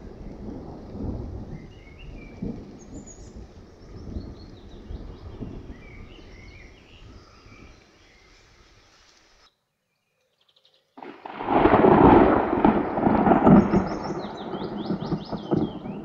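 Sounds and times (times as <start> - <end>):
thunder rumbling: 0.0 - 6.7, 11.0 - 16.0
loud peal of thunder: 11.0 - 16.0
small birds chirping: 13.3 - 16.0.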